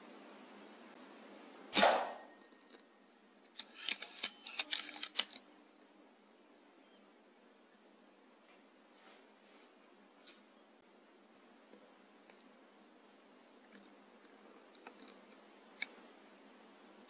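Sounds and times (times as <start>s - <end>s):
air rifle shot: 1.7s - 2.3s
clicks and rattles: 2.4s - 5.5s, 13.7s - 16.0s.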